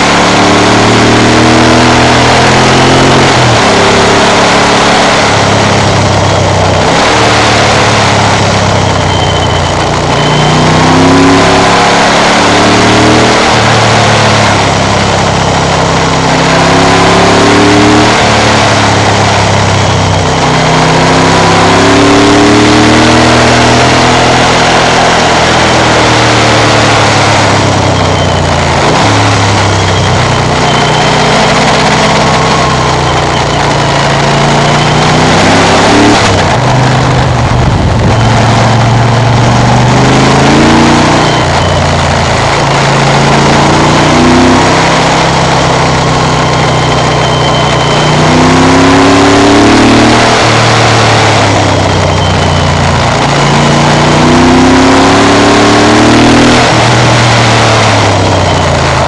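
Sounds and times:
motorcycle engine revving: 0.0 - 59.0.

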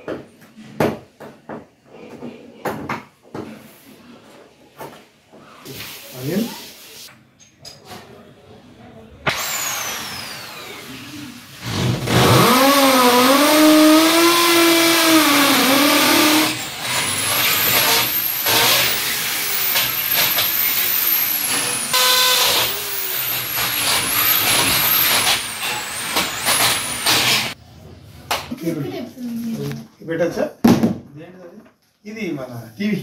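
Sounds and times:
electric drill boring into wall: 9.3 - 27.6.

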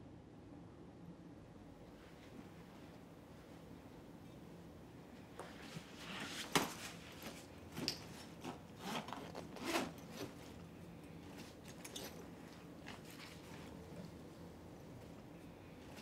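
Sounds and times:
backpack rustling and scraping: 5.4 - 14.2.

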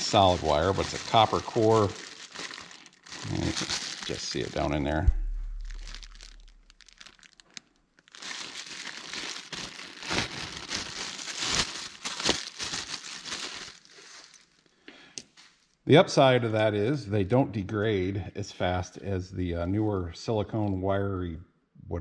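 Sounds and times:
plastic bag crinkling: 0.0 - 14.7.

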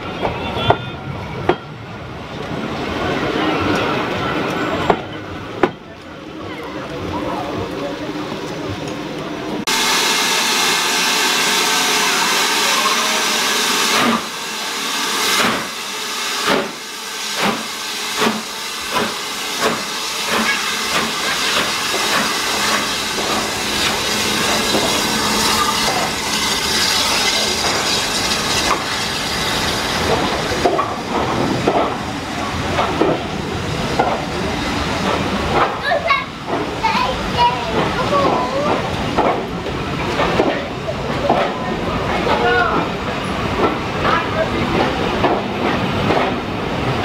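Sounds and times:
train coaches rolling past: 0.0 - 47.0
steam hissing: 9.6 - 35.7
steam locomotive chuffing beats: 9.6 - 41.6.

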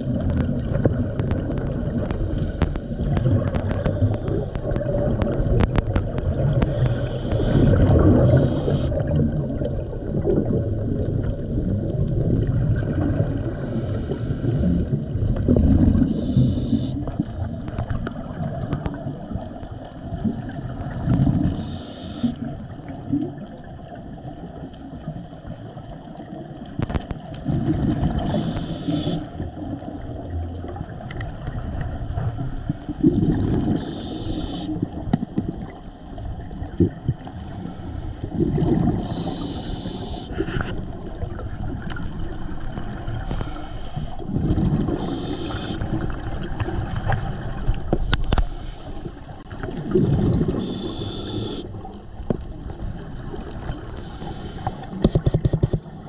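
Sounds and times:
exhaled bubbles underwater: 0.0 - 56.0
regulator hissing inhale: 6.6 - 9.0, 13.6 - 14.9, 16.1 - 17.0, 21.6 - 22.4, 28.2 - 29.3, 33.8 - 34.8, 39.0 - 40.7, 43.3 - 44.2, 45.0 - 45.8, 50.6 - 51.8, 54.0 - 55.0.

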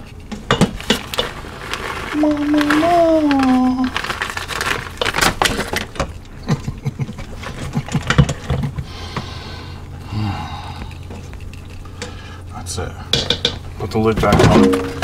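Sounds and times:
shredded cheese pouring: 1.0 - 5.7.

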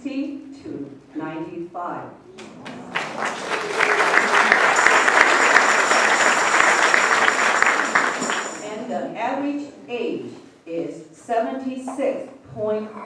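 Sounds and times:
audience applauding: 2.4 - 8.7.

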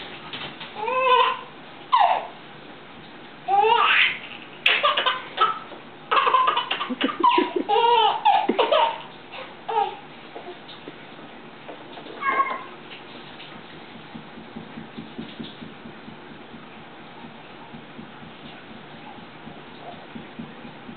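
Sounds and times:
baby giggling and squealing: 0.8 - 2.3, 3.6 - 10.0.

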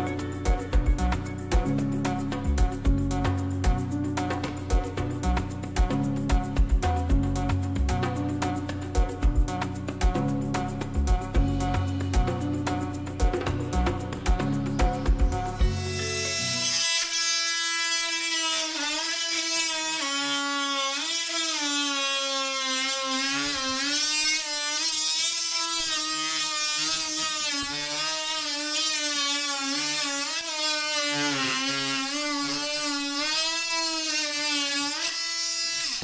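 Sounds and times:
multi-tool cutting wood: 0.0 - 36.0.

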